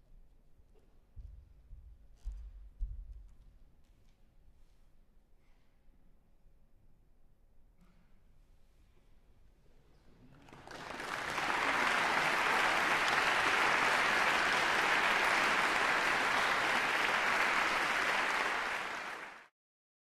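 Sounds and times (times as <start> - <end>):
audience applauding: 10.3 - 19.5.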